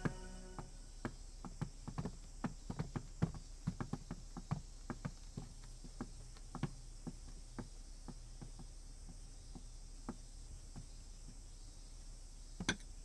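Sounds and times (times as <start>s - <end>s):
footsteps on wooden floor: 0.0s - 11.4s.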